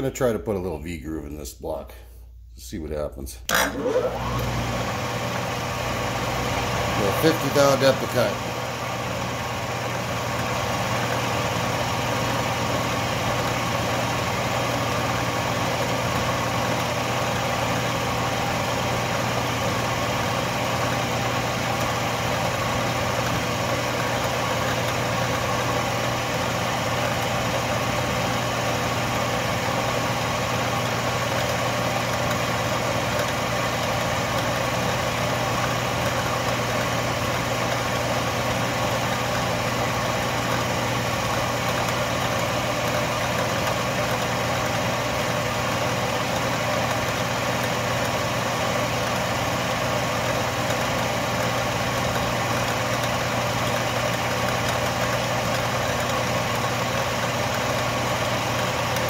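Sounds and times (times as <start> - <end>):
lathe motor hum: 3.5 - 59.0
end mill cutting metal: 6.6 - 8.5.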